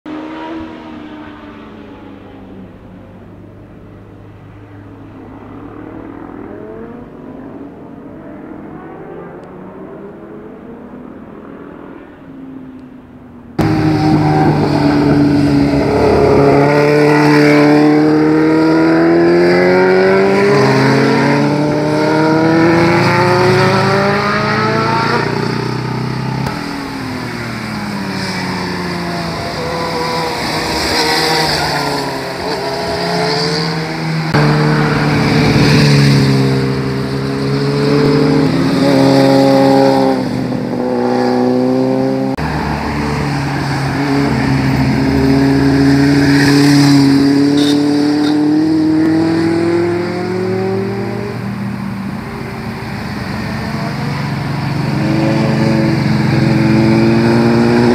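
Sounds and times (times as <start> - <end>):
motorcycle engine accelerating: 13.6 - 42.5, 43.9 - 57.9.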